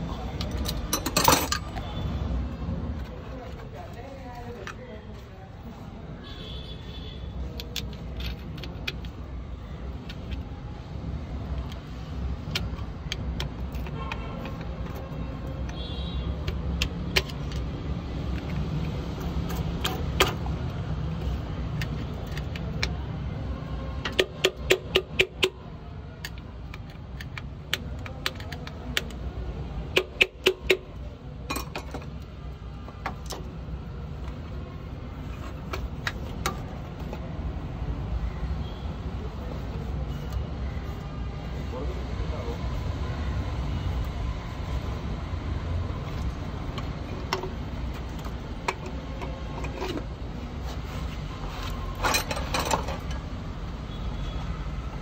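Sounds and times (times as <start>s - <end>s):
metal tools clinking: 0.4s - 1.8s, 51.5s - 53.2s.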